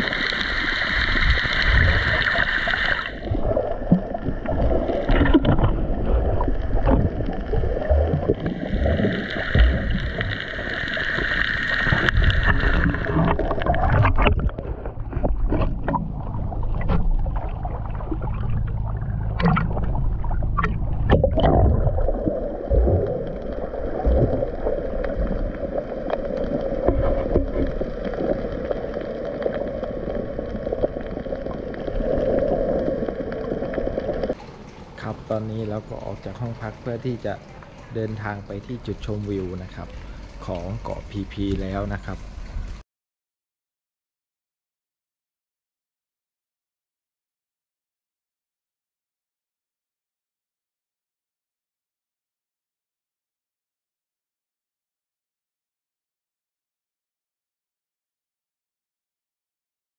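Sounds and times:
underwater rumble and gurgle: 0:00.0 - 0:42.8
water splashing and sloshing: 0:00.0 - 0:42.8.

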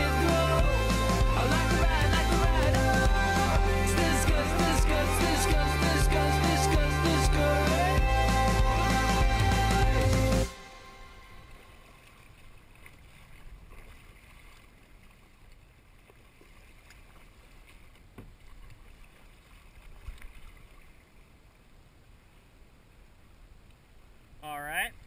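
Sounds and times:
music: 0:00.0 - 0:11.8
paddle splashing in water: 0:11.2 - 0:21.3.

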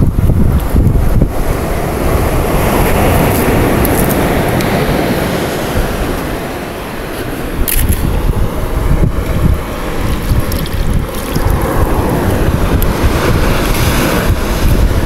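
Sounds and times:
surf: 0:00.0 - 0:15.0
wind buffeting microphone: 0:00.0 - 0:15.0
water splashing over rock: 0:09.2 - 0:15.0.

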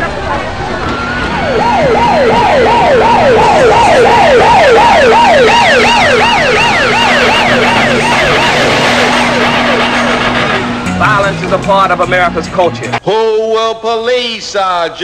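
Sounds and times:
higher siren: 0:00.0 - 0:11.0
police siren yelping: 0:00.0 - 0:11.0.

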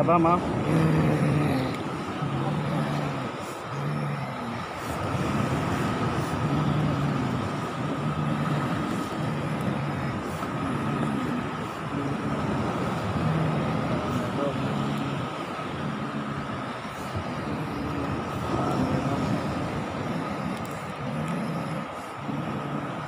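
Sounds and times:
man grunting: 0:00.6 - 0:04.8.

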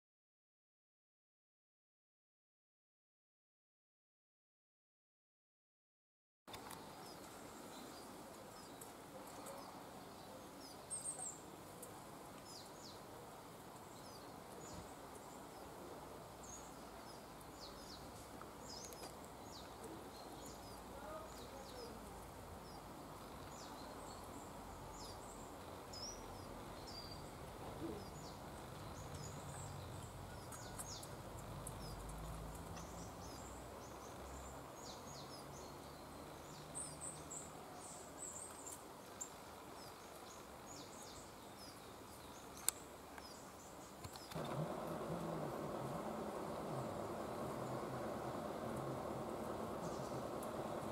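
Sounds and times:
bird chirps: 0:22.6 - 0:50.9
faint low rumble: 0:44.3 - 0:50.9.

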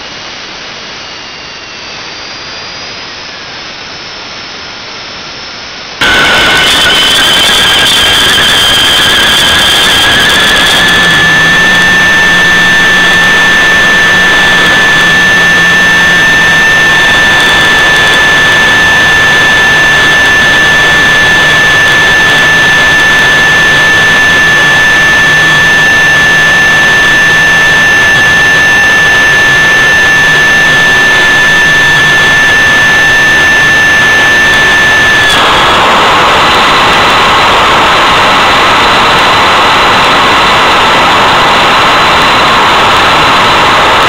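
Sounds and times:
high-pitched turbine whine: 0:00.0 - 0:44.0
jet engine roaring: 0:06.0 - 0:44.0.

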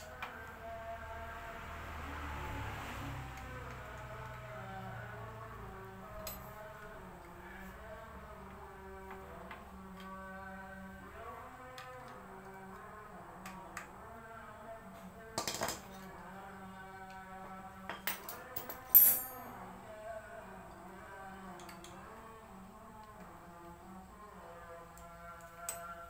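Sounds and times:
metal tools clinking: 0:17.9 - 0:19.6.

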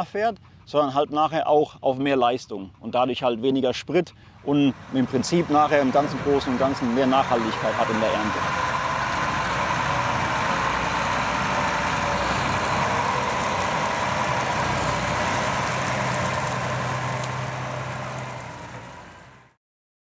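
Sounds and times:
constant whine: 0:04.2 - 0:19.5
tractor diesel engine running: 0:04.2 - 0:19.6.

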